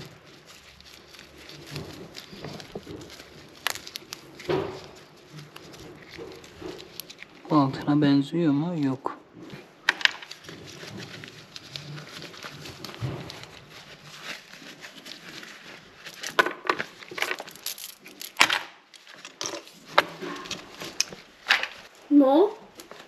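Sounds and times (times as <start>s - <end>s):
fabric pouches rustling: 0.0s - 23.0s
jewellery clicking: 17.2s - 18.7s.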